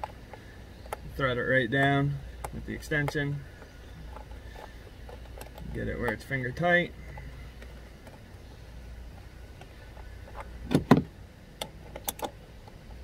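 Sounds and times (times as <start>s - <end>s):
hand tools clicking on bolt: 11.6s - 12.8s.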